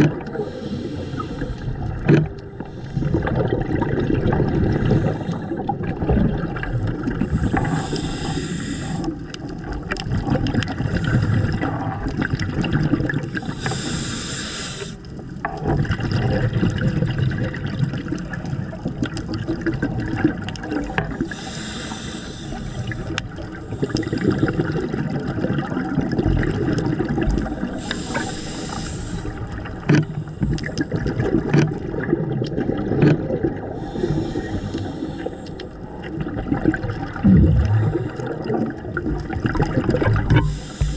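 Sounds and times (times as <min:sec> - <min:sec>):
regulator bubbles rushing: 0:00.0 - 0:07.9, 0:09.5 - 0:13.4, 0:22.7 - 0:27.8, 0:29.3 - 0:40.9
crackling clicks: 0:00.0 - 0:14.1, 0:22.1 - 0:40.9
low underwater rumble: 0:00.0 - 0:14.2, 0:15.2 - 0:40.9.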